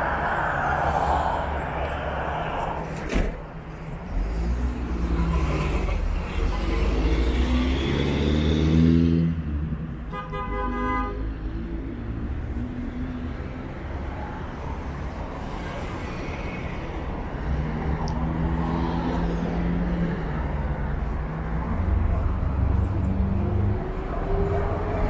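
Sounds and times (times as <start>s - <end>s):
vehicles driving past: 0.0s - 25.0s
engine hum: 16.2s - 25.0s.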